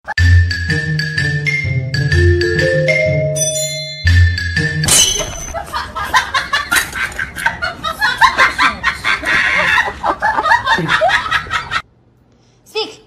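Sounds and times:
people giggling: 5.5 - 11.8.

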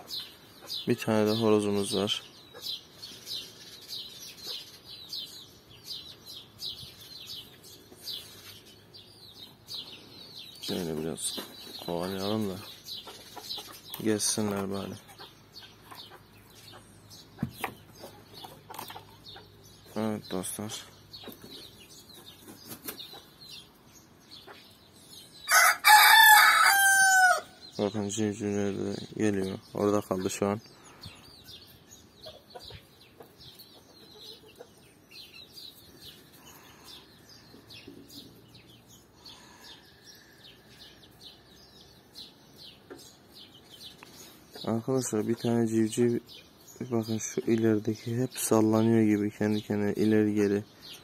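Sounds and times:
chicks peeping: 0.0 - 51.0
rooster crowing: 25.5 - 27.6.

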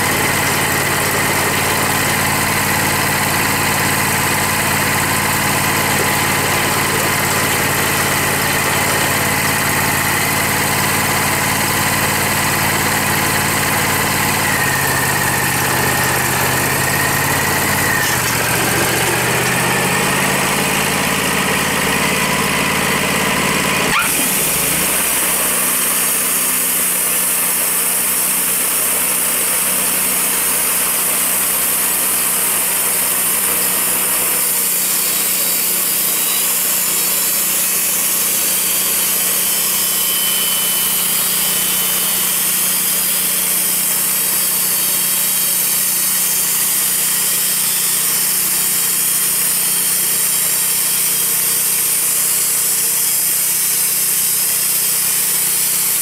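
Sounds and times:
bandsaw mill cutting log: 0.0 - 56.0.

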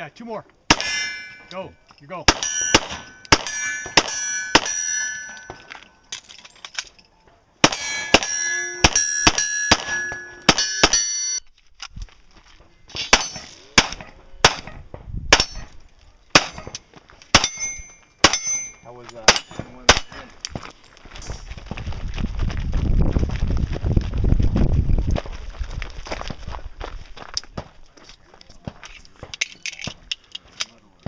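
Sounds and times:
pistol shots: 0.7 - 1.2, 2.3 - 5.6, 7.6 - 11.1, 13.1 - 15.7, 16.3 - 18.5, 19.3 - 20.3
steel targets clanging: 0.7 - 11.4, 13.0 - 14.8, 15.4 - 15.8, 17.4 - 20.4.

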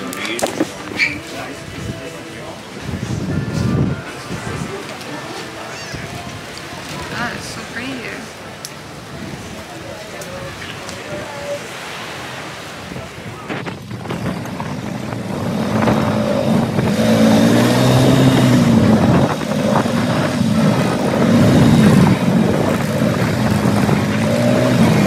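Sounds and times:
rushing wind: 0.0 - 25.0
atv engine running: 14.0 - 25.0.

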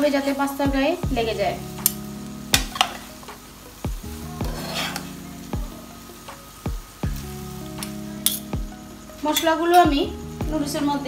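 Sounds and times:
light sizzle from pan: 0.0 - 11.0
spoons knocking against pan: 2.6 - 3.1
scraping and stirring noodles: 4.4 - 5.3.

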